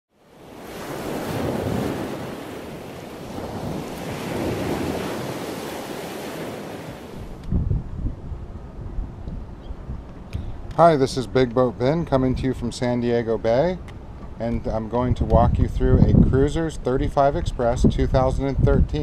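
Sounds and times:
ocean surf washing in: 0.1s - 8.4s
wind buffeting microphone: 0.5s - 13.0s, 13.8s - 19.0s.

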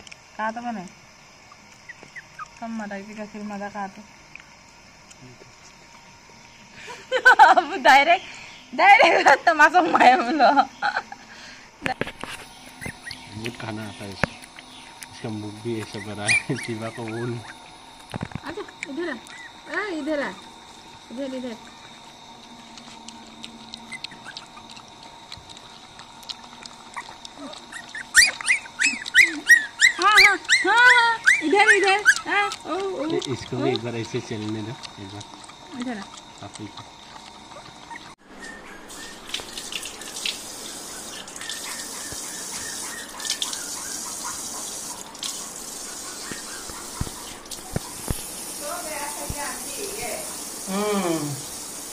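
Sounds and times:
puppies lapping milk: 1.5s - 3.7s, 12.0s - 50.7s
puppy whimpering yelps: 15.8s - 17.7s, 19.2s - 19.8s, 23.6s - 24.9s, 26.8s - 33.7s, 37.1s - 39.4s, 40.8s - 44.7s, 45.8s - 48.1s
tap water spraying and splashing: 38.9s - 50.7s, 51.4s - 51.9s.

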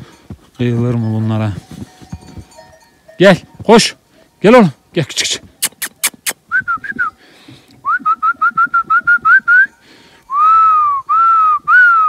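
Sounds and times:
man whistling: 5.6s - 7.2s, 7.8s - 12.0s.

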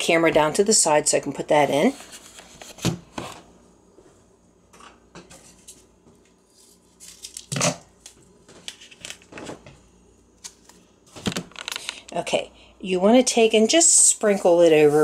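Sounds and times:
packet rustling and clicking: 10.4s - 12.0s.

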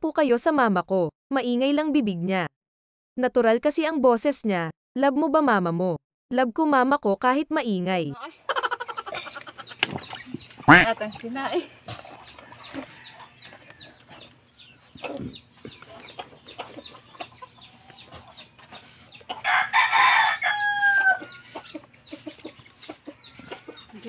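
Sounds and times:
rooster crowing: 12.4s - 14.0s, 19.4s - 21.5s.

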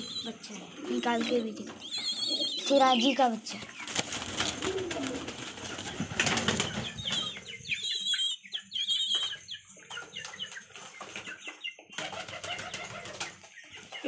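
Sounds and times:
high wavering bird chirps: 0.0s - 4.0s, 6.3s - 14.0s
pigeon wings flapping: 3.8s - 7.3s, 12.0s - 13.4s.

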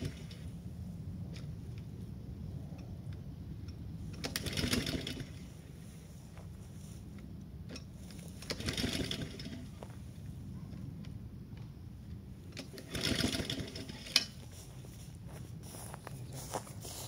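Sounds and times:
small petrol engine idling: 3.1s - 10.2s, 12.4s - 14.4s.

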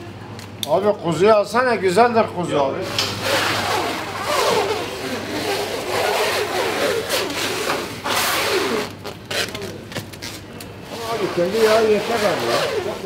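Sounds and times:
plastic cling film stretching: 3.2s - 13.0s.

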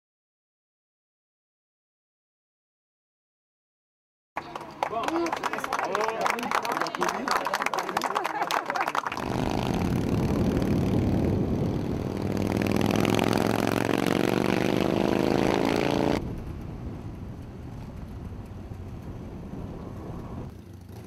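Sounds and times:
motorcycle engine accelerating: 9.1s - 21.0s.

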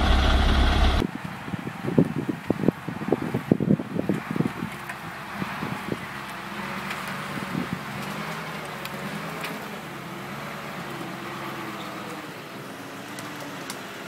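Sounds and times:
truck engine running: 0.0s - 1.0s.

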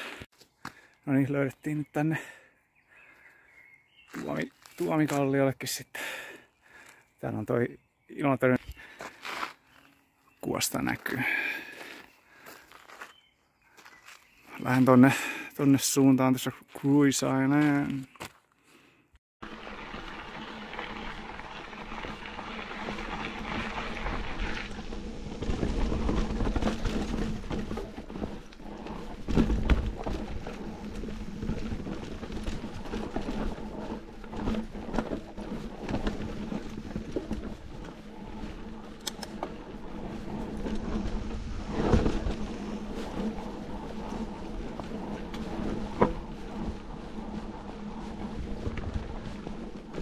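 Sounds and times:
bike tyres crunching on gravel: 3.0s - 7.5s, 8.4s - 18.5s, 19.4s - 50.0s
bike knocking and rattling: 19.4s - 50.0s.

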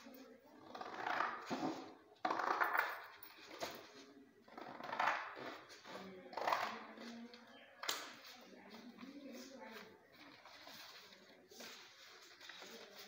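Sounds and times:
paper rustling and flapping: 8.8s - 13.0s.

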